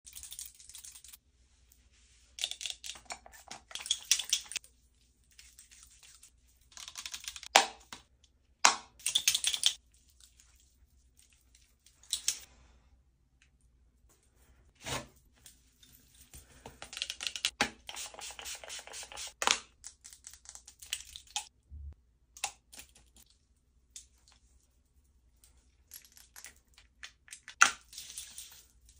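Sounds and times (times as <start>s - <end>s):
hands rubbing and patting skin: 1.9s - 7.5s.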